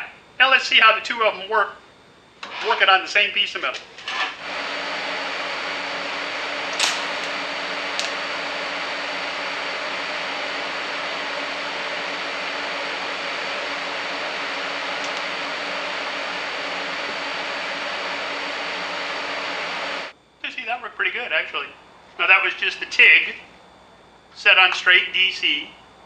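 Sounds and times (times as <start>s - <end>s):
welding hiss with faint hum: 0.0s - 26.0s
welding arc crackle: 3.7s - 20.1s.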